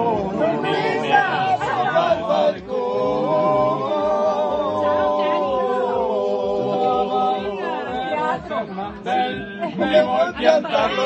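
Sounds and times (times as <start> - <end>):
men singing a cappella: 0.0 - 11.0.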